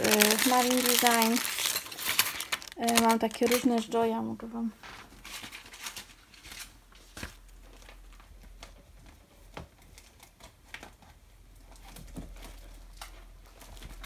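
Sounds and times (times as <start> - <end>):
plastic packets crinkling: 0.0 - 4.2, 5.0 - 8.2.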